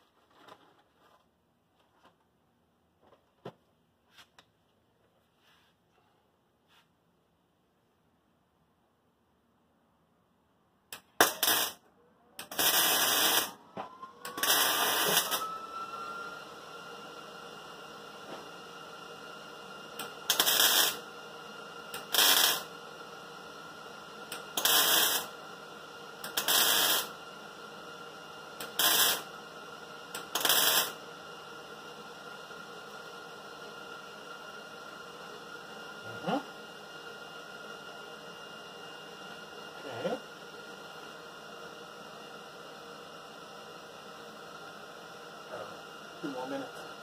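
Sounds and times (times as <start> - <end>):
crackling welding arc bursts: 11.1 - 11.8, 12.4 - 13.6, 14.3 - 15.4, 20.3 - 21.0, 21.9 - 22.7, 24.5 - 25.3, 26.3 - 27.1, 28.6 - 29.3, 30.2 - 31.0.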